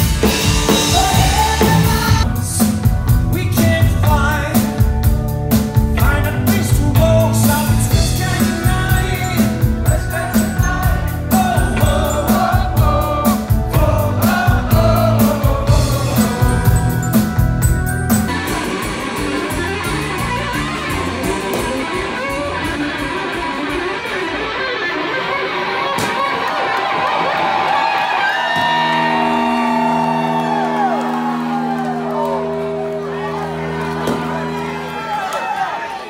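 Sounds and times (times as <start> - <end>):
live rock band playing: 0.0 - 35.3
man singing lead vocals: 0.6 - 5.0, 5.9 - 17.4.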